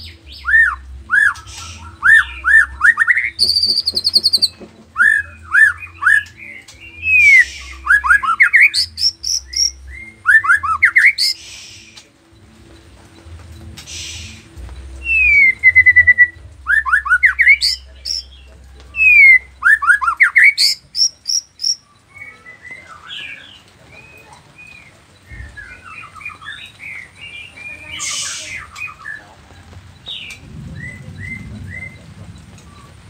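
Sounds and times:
songbird singing: 0.0 - 33.0.

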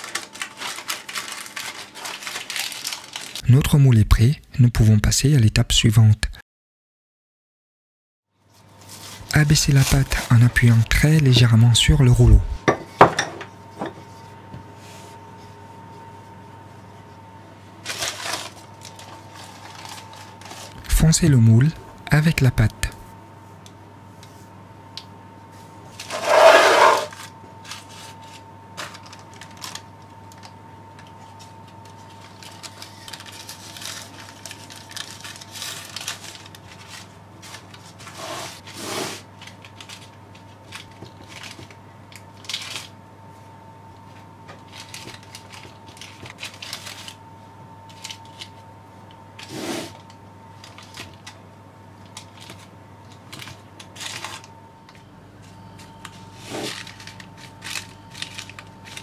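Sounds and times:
baking paper rustling: 0.0 - 3.4, 8.5 - 12.5, 17.8 - 21.2, 25.9 - 42.9, 44.0 - 47.2, 52.1 - 54.5, 55.8 - 59.0
faint steady hum: 8.4 - 59.0.

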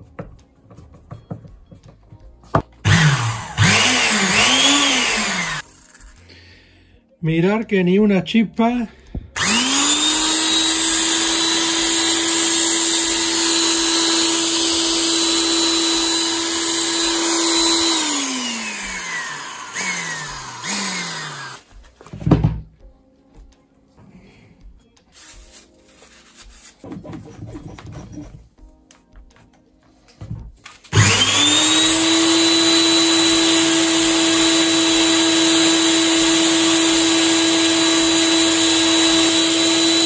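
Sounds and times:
background music: 0.0 - 40.0
electric drill whining: 2.8 - 5.7, 9.4 - 21.7, 30.9 - 40.0.

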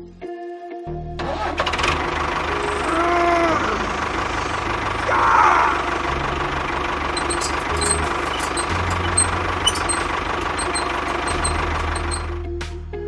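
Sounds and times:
tractor engine knocking: 6.4 - 12.3
short squeal: 7.2 - 12.3.

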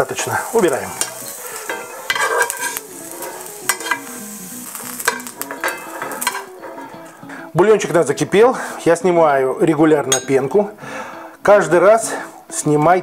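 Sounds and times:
light sizzle from pan: 0.0 - 7.3
metal tongs clicking: 0.9 - 4.1, 4.9 - 6.9.

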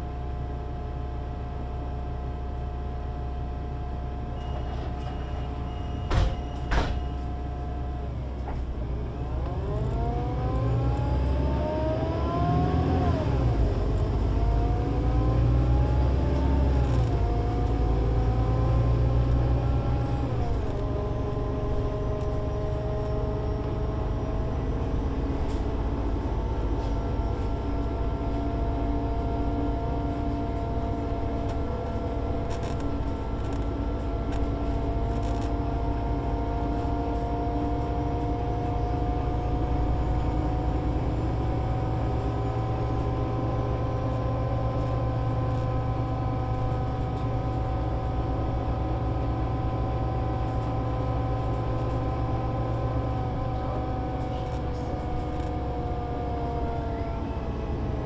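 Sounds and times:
bus engine idling and accelerating: 0.0 - 58.0
short beep: 4.4 - 7.2.

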